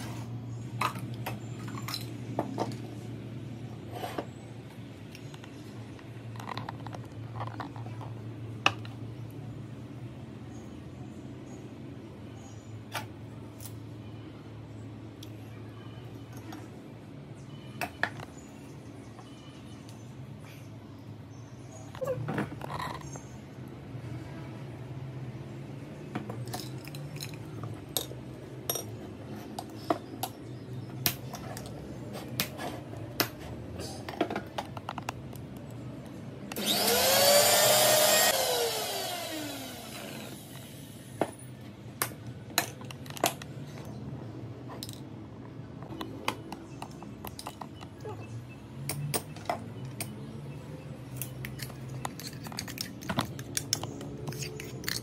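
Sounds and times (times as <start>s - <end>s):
mixer grinder motor: 36.5s - 40.8s
utensils clinking on steel jar: 51.5s - 55.0s.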